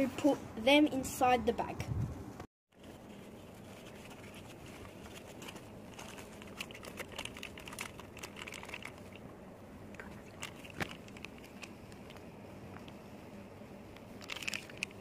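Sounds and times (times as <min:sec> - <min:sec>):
paper and plastic bag crinkling: 0:02.8 - 0:09.2, 0:10.0 - 0:12.2, 0:14.2 - 0:15.0.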